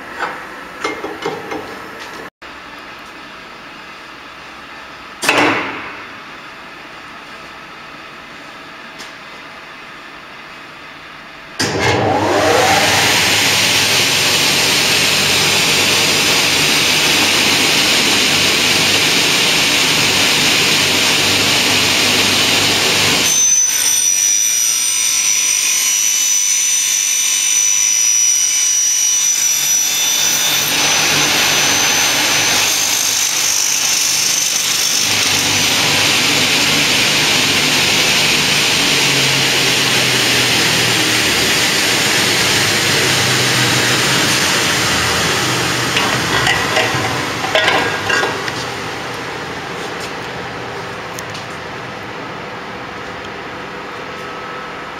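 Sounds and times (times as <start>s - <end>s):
saw motors running: 11.6s - 49.2s
thin high whistle: 23.3s - 30.4s.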